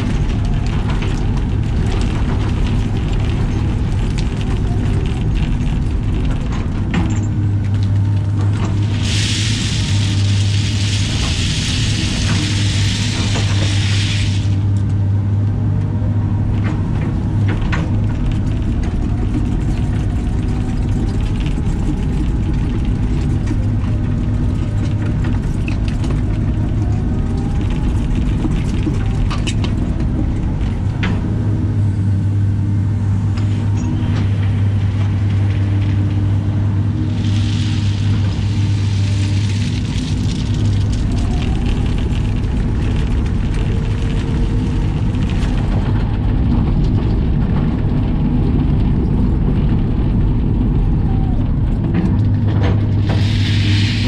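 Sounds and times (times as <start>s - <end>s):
excavator diesel engine humming: 0.0s - 54.0s
gravel pouring from bucket: 7.8s - 14.7s, 34.6s - 46.3s, 53.0s - 54.0s
hydraulic whines: 8.6s - 14.8s, 33.3s - 45.1s, 52.8s - 54.0s.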